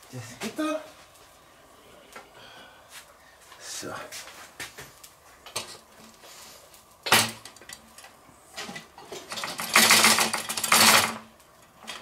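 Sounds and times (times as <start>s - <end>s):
metal grill basket clattering: 7.0s - 12.0s.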